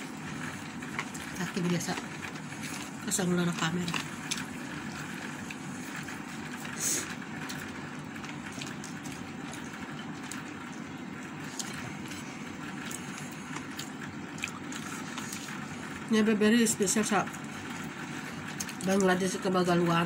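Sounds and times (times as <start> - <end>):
chewing: 0.4 - 16.0, 17.8 - 19.1.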